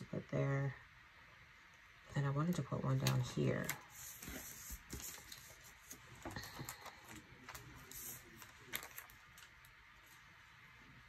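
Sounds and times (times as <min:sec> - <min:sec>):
paper rustling and crinkling: 0:03.0 - 0:10.4.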